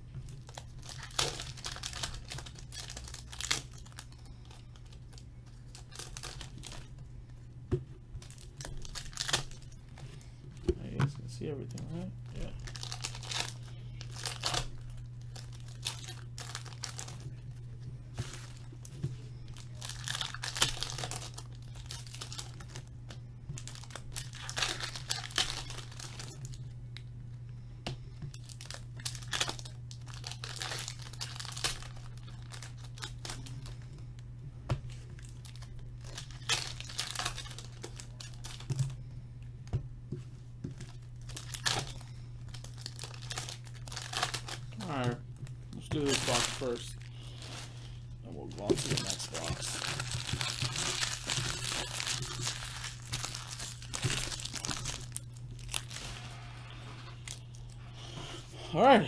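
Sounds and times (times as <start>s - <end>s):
steady low hum: 0.0s - 59.0s
plastic wrappers tearing and crinkling: 0.2s - 7.0s, 8.2s - 10.1s, 10.8s - 17.4s, 18.1s - 26.7s, 28.3s - 34.0s, 34.9s - 39.0s, 40.8s - 58.3s
cards being handled: 48.6s - 55.1s.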